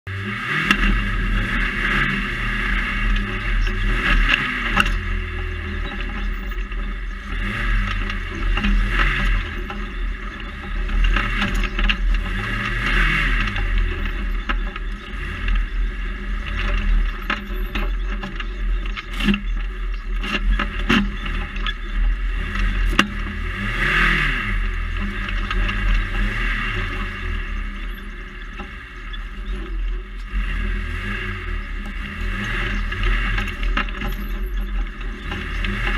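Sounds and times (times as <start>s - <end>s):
buggy engine revving: 0.0s - 35.9s
car knocks over bumps: 31.4s - 35.9s.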